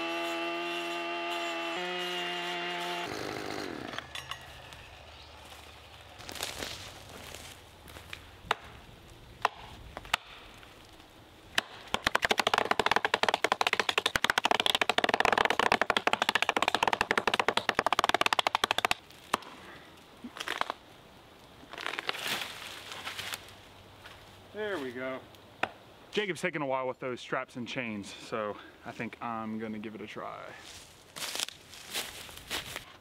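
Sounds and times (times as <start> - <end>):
hatchet chopping tree trunk: 8.4 - 8.8, 9.4 - 10.4, 11.5 - 19.5.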